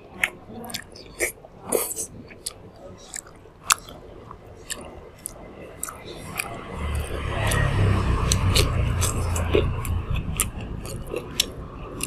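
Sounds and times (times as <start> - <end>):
mouth clicks and chewing: 0.2 - 12.0
road traffic rumble: 2.8 - 12.0.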